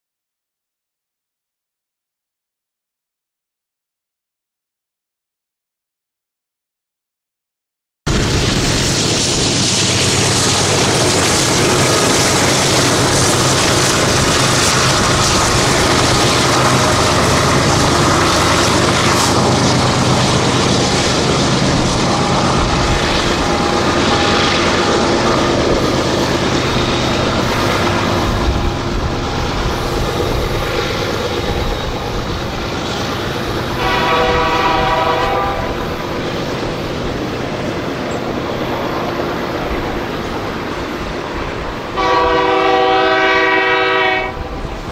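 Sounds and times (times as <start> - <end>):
diesel locomotives passing: 8.1 - 44.9
train wheels on rails: 8.1 - 44.9
locomotive horn: 33.8 - 35.9, 42.0 - 44.6.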